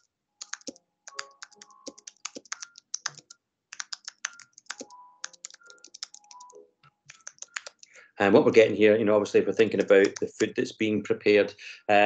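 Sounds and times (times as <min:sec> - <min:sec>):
typing on computer keyboard: 0:00.4 - 0:08.0, 0:09.8 - 0:10.5.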